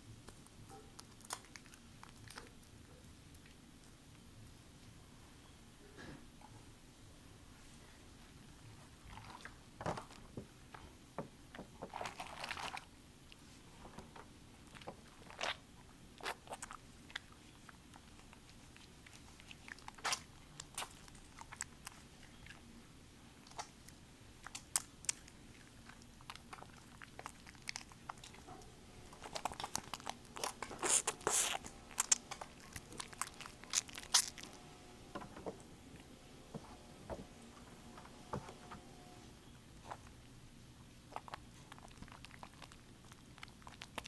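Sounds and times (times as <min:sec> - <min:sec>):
soapy lather crackling and squishing: 0:08.9 - 0:09.6, 0:11.9 - 0:13.5, 0:14.6 - 0:22.7, 0:29.1 - 0:34.7.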